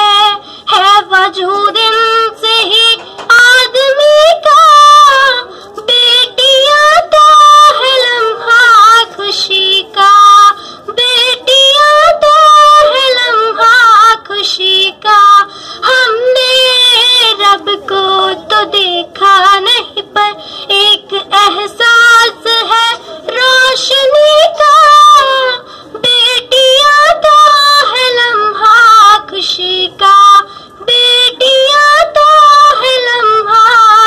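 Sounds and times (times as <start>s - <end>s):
boy singing into a microphone: 0.0s - 34.0s.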